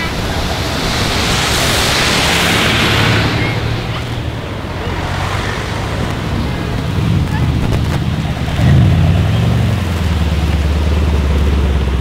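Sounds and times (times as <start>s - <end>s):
low engine rumble: 0.0s - 12.0s
tyres hissing on wet road: 0.0s - 12.0s.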